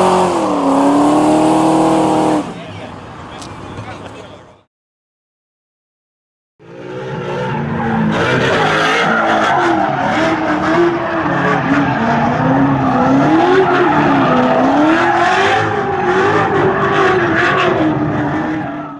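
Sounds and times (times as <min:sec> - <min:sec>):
car engine revving high: 0:00.0 - 0:02.7, 0:06.6 - 0:18.7.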